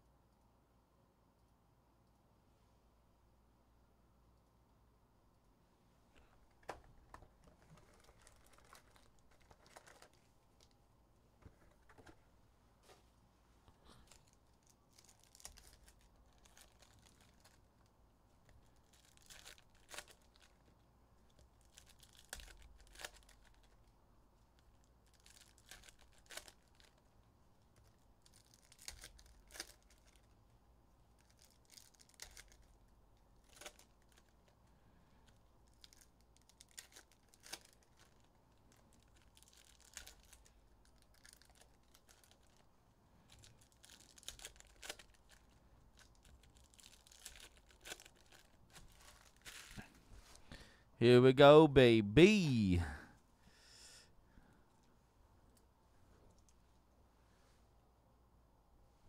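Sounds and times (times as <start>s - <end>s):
foil wrappers tearing and crinkling: 35.7s - 38.3s, 38.9s - 42.6s, 43.4s - 49.8s.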